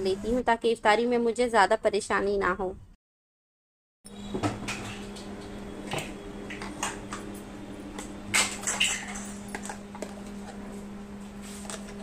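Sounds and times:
utensils clinking against dishes: 8.4 - 9.8.

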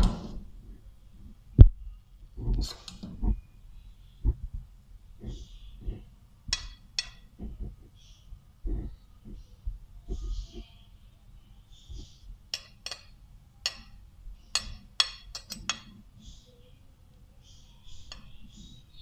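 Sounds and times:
metal clinking on glass: 6.5 - 7.3, 12.5 - 16.0.

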